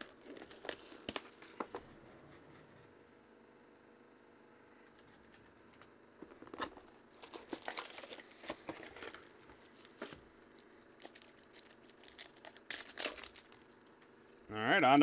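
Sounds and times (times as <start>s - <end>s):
plastic wrapper crinkling and tearing: 0.0s - 1.6s, 6.8s - 10.2s, 11.0s - 14.0s.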